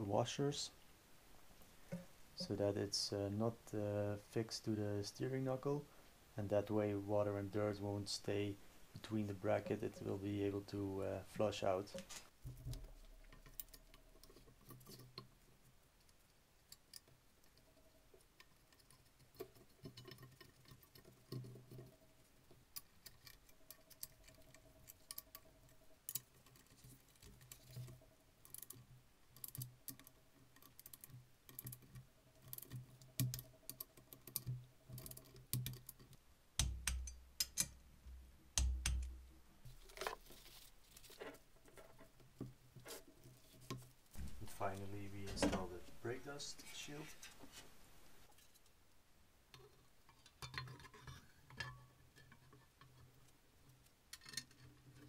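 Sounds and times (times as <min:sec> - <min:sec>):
knocks and thumps: 0:44.1 - 0:46.0.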